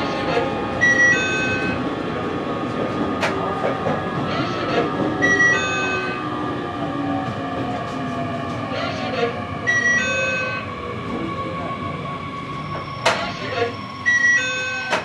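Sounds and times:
steady high tone: 4.3s - 6.9s.

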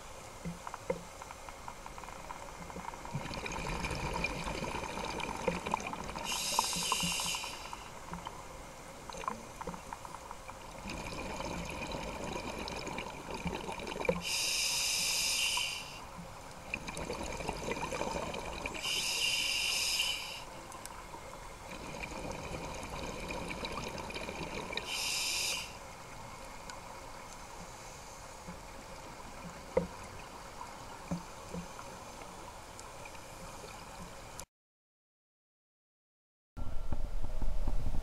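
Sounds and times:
exhaled bubbles rushing underwater: 2.8s - 7.3s, 9.0s - 14.2s, 16.6s - 18.8s, 21.7s - 24.9s
regulator inhale hiss: 6.2s - 8.0s, 14.2s - 16.1s, 18.8s - 20.6s, 24.8s - 25.9s, 27.6s - 28.5s
faint clicks: 20.7s - 21.2s.

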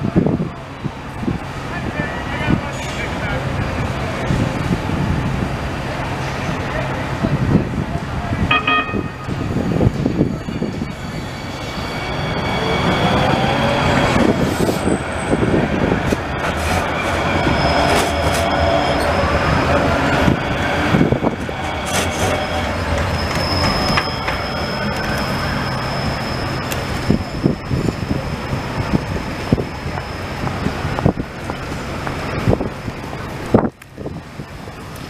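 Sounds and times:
train rumble: 0.0s - 35.0s
brief short tone: 8.5s - 9.9s
wheel squeal: 9.8s - 28.2s.

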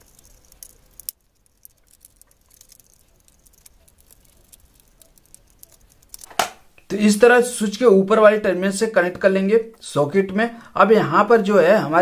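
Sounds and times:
sharp ticks: 0.0s - 6.4s
screwdriver clicks and scrapes: 0.0s - 6.5s.

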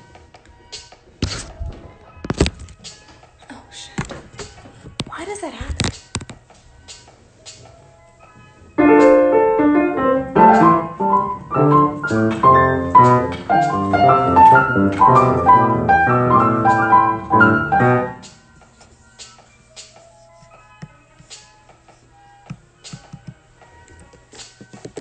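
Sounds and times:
piano playing chords and melody: 8.8s - 18.5s.

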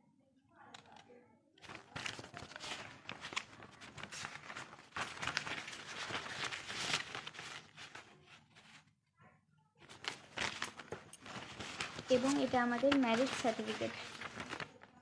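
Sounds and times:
paper rustling: 0.7s - 9.0s, 9.8s - 15.0s.

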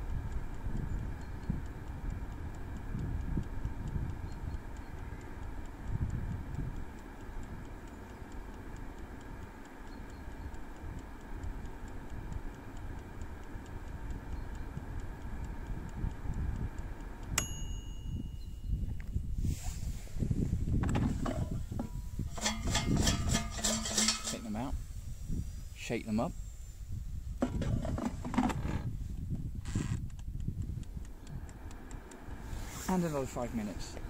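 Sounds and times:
wind rumble on microphone: 0.0s - 7.7s, 13.8s - 17.4s, 18.0s - 34.0s
air fryer running: 0.0s - 19.5s, 20.1s - 29.4s, 30.8s - 34.0s
clockwork timer ticking: 0.0s - 19.5s, 20.2s - 27.7s, 30.2s - 34.0s
timer bell ringing: 17.4s - 18.9s.

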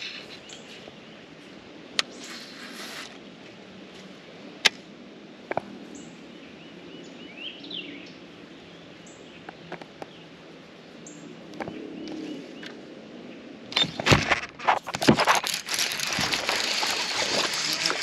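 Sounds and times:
small birds chirping: 0.0s - 3.1s
fishing reel clicks: 15.5s - 18.0s.

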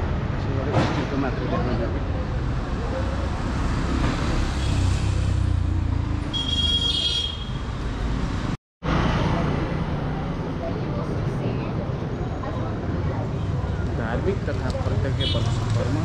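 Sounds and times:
traffic engines rumbling: 0.0s - 16.0s
vehicle horn: 6.3s - 7.7s.

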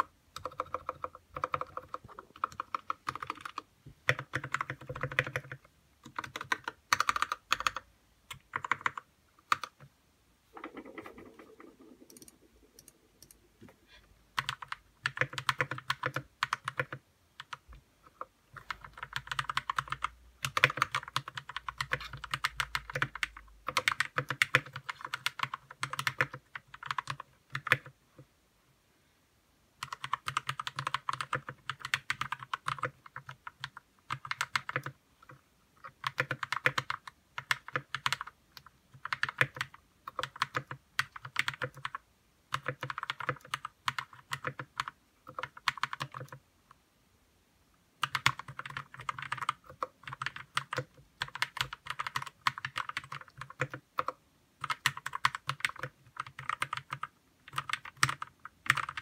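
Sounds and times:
mechanical keyboard typing: 0.0s - 9.9s, 10.5s - 13.4s, 14.4s - 28.0s, 29.8s - 46.4s, 48.0s - 59.0s.

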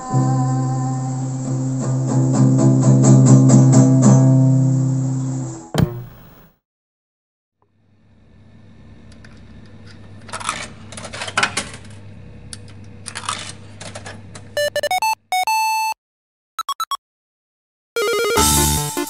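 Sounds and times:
eight-bit video game beeps: 14.6s - 16.0s, 16.6s - 17.0s, 18.0s - 18.7s.

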